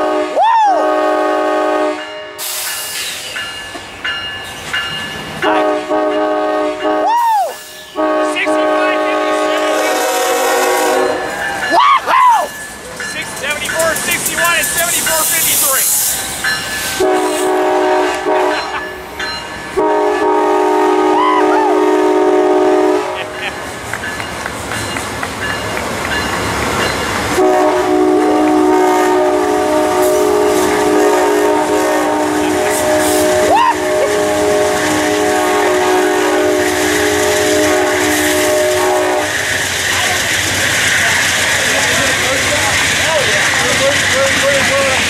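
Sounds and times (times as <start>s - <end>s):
locomotive air horn chord: 0.0s - 2.6s, 5.4s - 11.3s, 17.0s - 18.8s, 19.8s - 23.5s, 27.4s - 39.6s
freight train passing: 0.0s - 45.0s.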